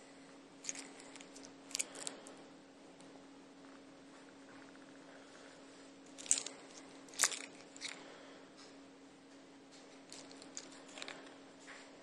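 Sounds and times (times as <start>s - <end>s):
faint steady hum: 0.0s - 12.0s
wristwatch handling scrapes: 0.6s - 2.3s, 6.2s - 8.0s, 10.1s - 11.3s.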